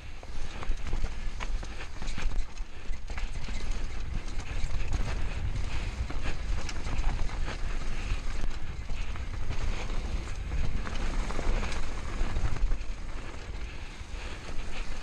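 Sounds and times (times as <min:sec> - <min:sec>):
bike rattling over bumps: 0:00.0 - 0:15.0
wind rumble on microphone: 0:00.0 - 0:15.0
tyres running over loose dirt: 0:00.2 - 0:15.0.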